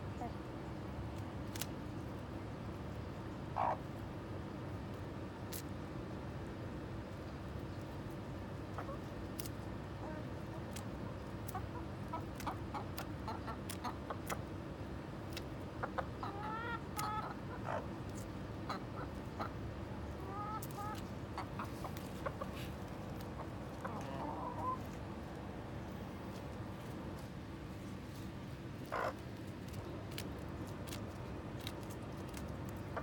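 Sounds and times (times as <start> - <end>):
steady low hum: 0.0 - 33.0
chickens clucking: 3.5 - 3.9, 8.6 - 27.4, 28.2 - 33.0.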